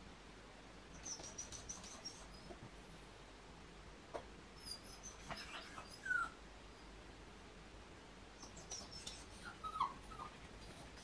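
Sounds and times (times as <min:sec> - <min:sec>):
faint high squeaks: 0:01.0 - 0:02.5
dog whimpering: 0:04.6 - 0:06.4, 0:08.4 - 0:11.0.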